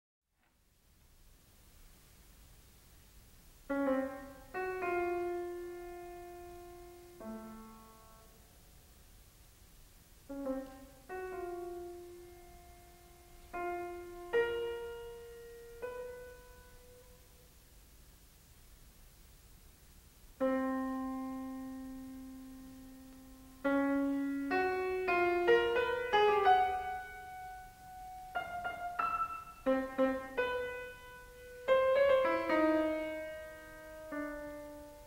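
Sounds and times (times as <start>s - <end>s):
slow solo piano: 3.7s - 8.9s, 10.2s - 17.6s, 20.4s - 35.0s.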